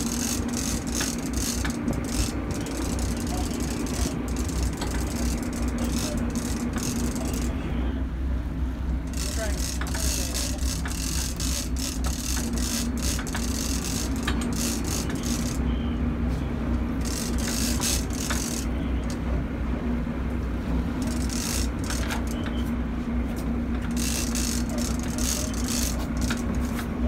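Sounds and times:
fishing reel gears ticking: 0.0s - 7.6s, 9.0s - 15.6s, 17.0s - 19.2s, 21.0s - 22.6s, 23.7s - 26.8s
boat engine droning: 0.0s - 27.0s.

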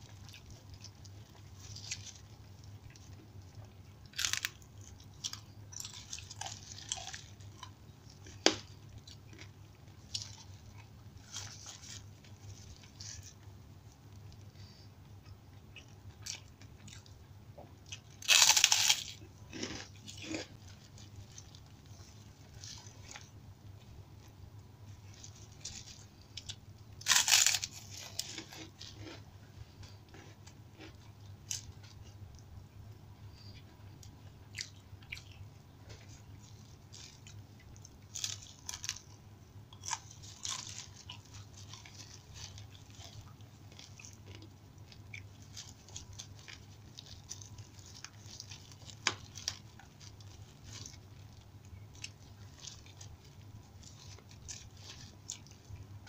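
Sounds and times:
crunching crackers: 0.0s - 17.2s, 17.8s - 32.5s, 33.3s - 56.0s
wet chewing: 33.3s - 56.0s.

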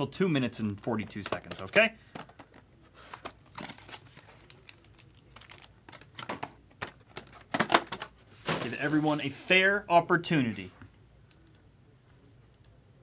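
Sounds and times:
packs crinkling and rustling: 3.0s - 9.5s.

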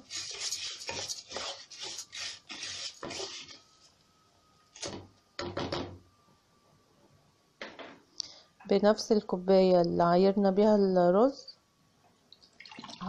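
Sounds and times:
wooden spoon scraping pot: 0.0s - 3.6s.

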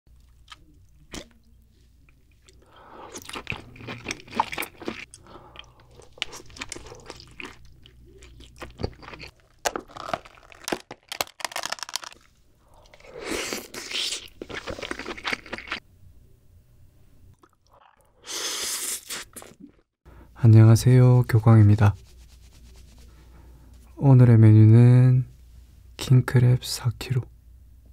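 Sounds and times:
person chewing: 0.1s - 15.8s, 17.4s - 19.9s
crab shell cracking: 8.2s - 12.2s.

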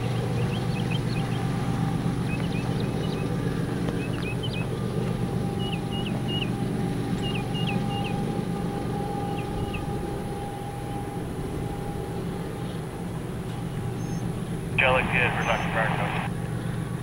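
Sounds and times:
diesel locomotive engine rumble: 0.0s - 17.0s.

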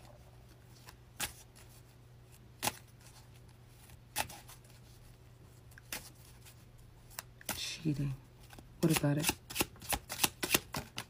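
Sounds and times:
cards clicking: 8.5s - 11.0s.

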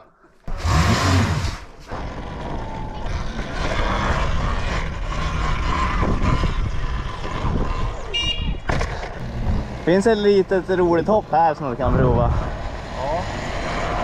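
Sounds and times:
wind rushing on microphone: 5.6s - 8.8s, 11.8s - 12.6s.

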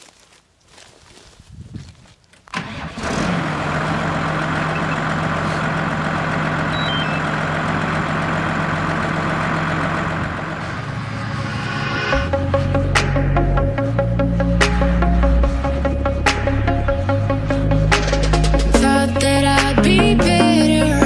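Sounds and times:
tractor diesel engine idling: 2.5s - 12.1s.

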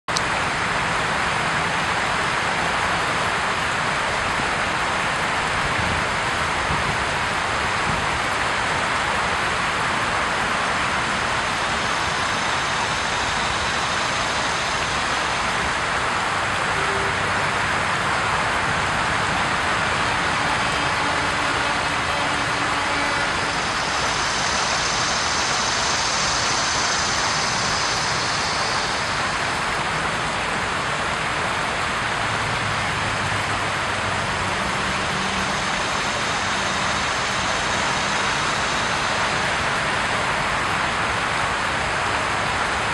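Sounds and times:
river water flowing: 0.1s - 42.9s.

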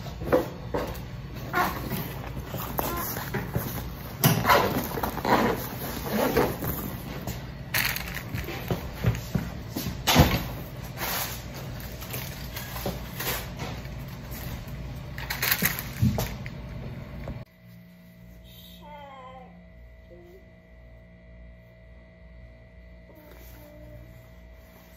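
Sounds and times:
steady low hum: 0.0s - 24.9s.

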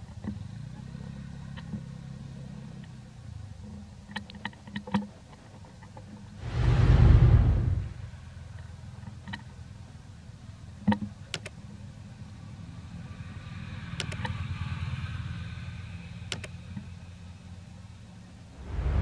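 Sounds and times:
low engine hum: 0.0s - 19.0s
sharp clicks: 10.9s - 11.6s, 14.0s - 14.3s, 16.3s - 16.6s
faint high whine: 11.7s - 19.0s.

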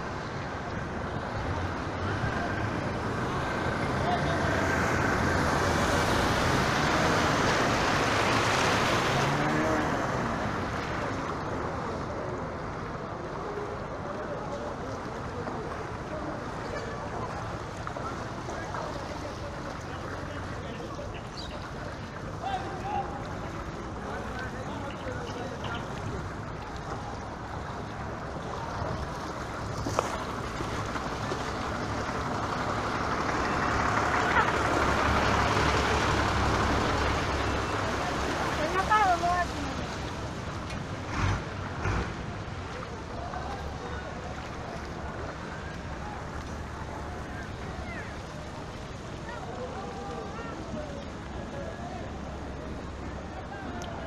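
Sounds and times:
water splashing under bus wheels: 0.0s - 54.0s
bus engine running: 30.2s - 42.7s.

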